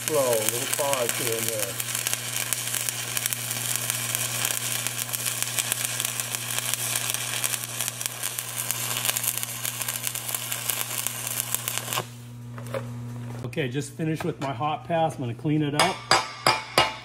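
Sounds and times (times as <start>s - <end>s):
welding arc crackling and sizzling: 0.0s - 13.5s.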